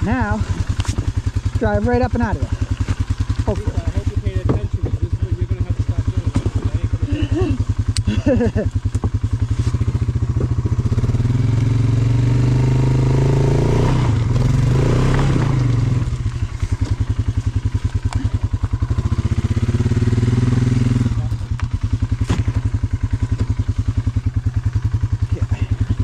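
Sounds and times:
atv engine idling and revving: 0.0s - 26.0s.

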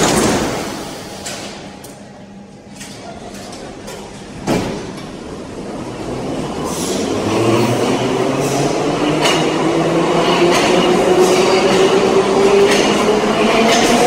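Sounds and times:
train doors slamming shut: 0.0s - 1.7s, 4.4s - 5.1s
train rumbling away: 3.7s - 14.0s.

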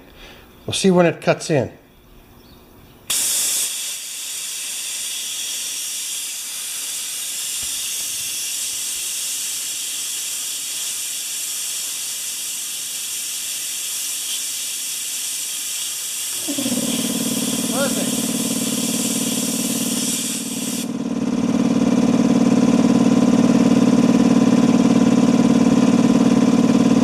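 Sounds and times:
compressed air hissing: 3.1s - 20.9s.

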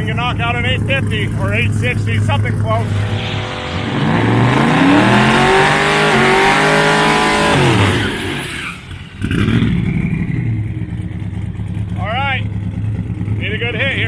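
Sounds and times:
engine rumbling at low revs: 0.0s - 14.0s
car engine revving high: 2.8s - 10.4s.

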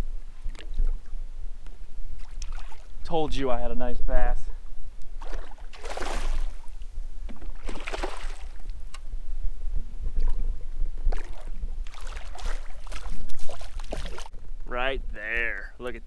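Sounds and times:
steady low rumble: 0.0s - 16.0s
fish splashing at water surface: 5.2s - 6.7s, 7.6s - 8.6s, 11.2s - 14.3s.

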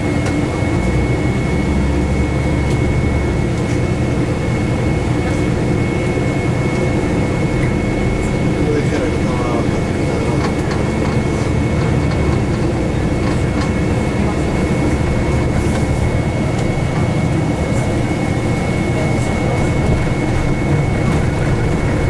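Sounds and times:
bus engine and road rumble: 0.0s - 22.0s.

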